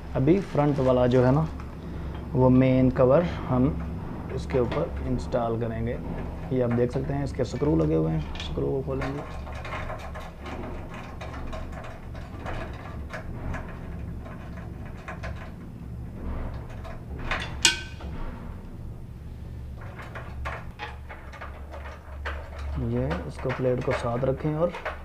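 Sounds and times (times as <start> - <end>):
steady low hum: 0.0 - 25.0
metallic clicks and scrapes: 3.4 - 25.0
sharp metal clack: 17.3 - 18.3.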